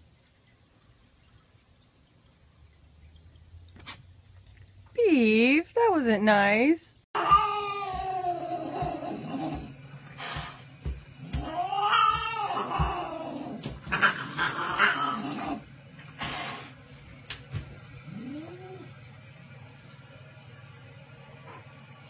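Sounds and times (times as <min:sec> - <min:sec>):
cat yowling: 0:07.2 - 0:09.7, 0:11.2 - 0:15.6
cat hissing: 0:11.3 - 0:15.6.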